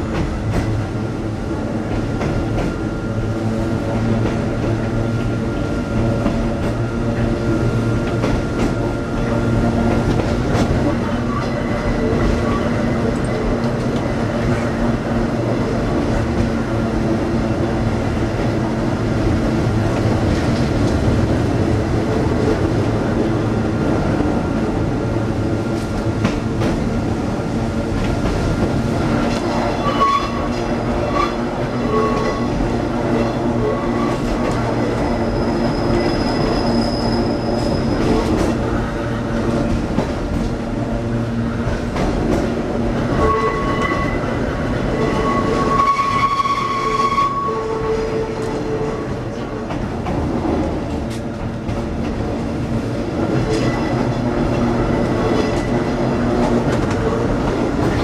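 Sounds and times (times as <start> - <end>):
train motors and wheels rumbling: 0.0 - 58.0
high-pitched wheel squeals: 29.7 - 30.5, 34.9 - 38.2, 43.2 - 44.3, 44.9 - 49.2.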